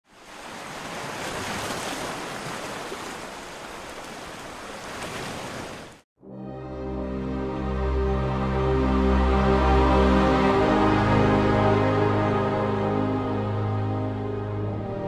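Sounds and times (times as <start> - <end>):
water splashing and sloshing: 0.0 - 6.0
music with held notes: 6.2 - 15.0.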